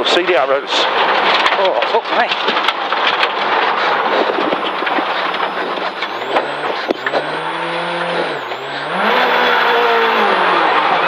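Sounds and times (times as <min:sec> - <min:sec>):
tyres scrabbling on gravel: 0:00.0 - 0:10.4
rally car engine revving: 0:02.6 - 0:11.0.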